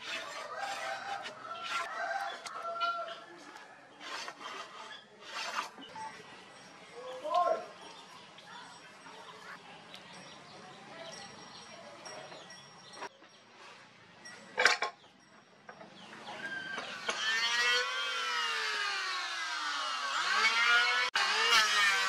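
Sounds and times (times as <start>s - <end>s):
electric planer motor whining: 16.8s - 22.0s.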